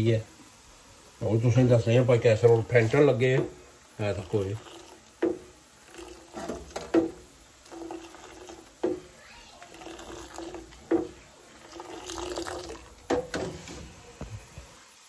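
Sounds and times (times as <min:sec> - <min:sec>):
tea splashing into pot: 0:02.2 - 0:14.8
ladle clinking in metal pot: 0:09.8 - 0:13.9.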